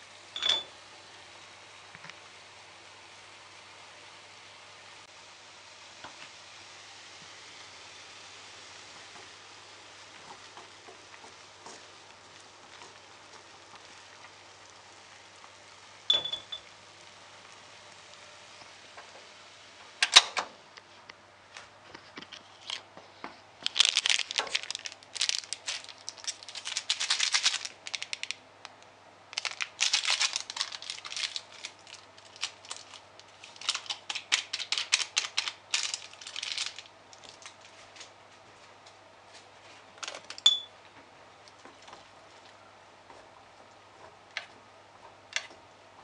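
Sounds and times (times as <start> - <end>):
plastic packet crinkling: 23.6 - 38.0.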